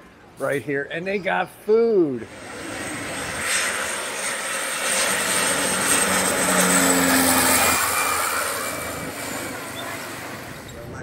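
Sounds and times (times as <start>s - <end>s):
propeller plane passing overhead: 1.0s - 11.0s.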